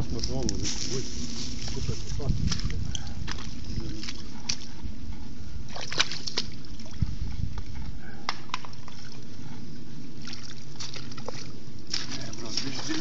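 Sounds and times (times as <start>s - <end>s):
water sloshing and splashing: 2.4s - 4.7s, 5.6s - 7.6s, 10.1s - 13.0s.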